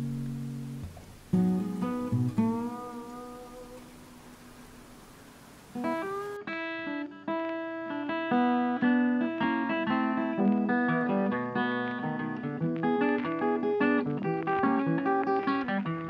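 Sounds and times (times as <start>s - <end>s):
acoustic guitar picking: 0.0s - 16.0s.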